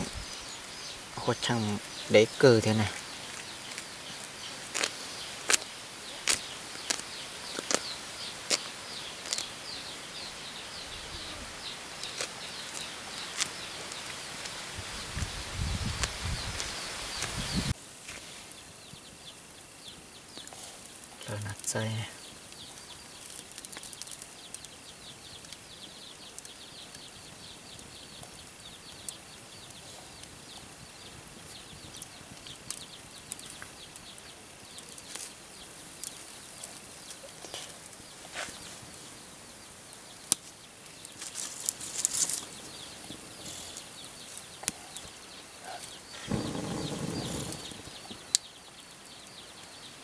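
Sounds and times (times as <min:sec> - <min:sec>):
rustling: 0:40.3 - 0:48.4.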